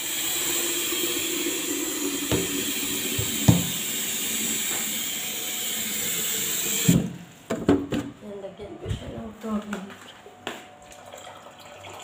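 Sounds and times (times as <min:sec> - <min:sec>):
pot boiling: 0:00.0 - 0:07.0
plastic jug knocks: 0:02.3 - 0:02.6, 0:03.2 - 0:03.8.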